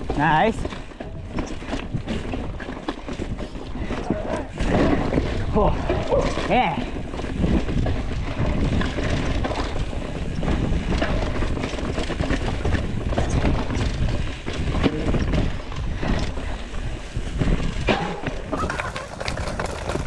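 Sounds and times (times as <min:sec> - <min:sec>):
bike clicks and rattles: 0:00.0 - 0:20.0
bike tyres on leaves and stones: 0:00.0 - 0:20.0.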